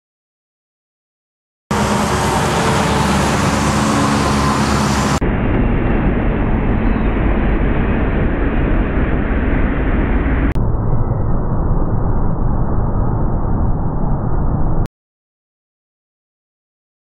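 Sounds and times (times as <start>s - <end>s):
trucks passing with rumble: 1.7s - 10.6s.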